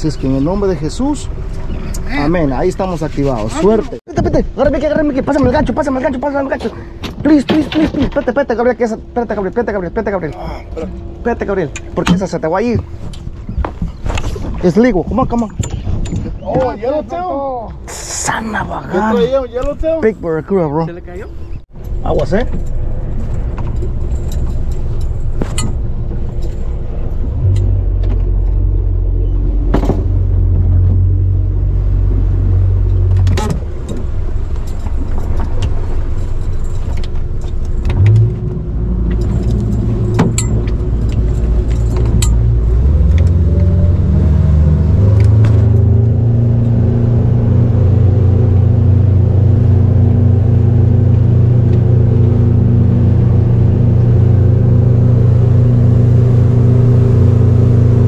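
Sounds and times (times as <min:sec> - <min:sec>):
boat engine running: 0:00.0 - 0:17.1, 0:18.9 - 0:58.0
knocks and rattles: 0:32.8 - 0:43.4.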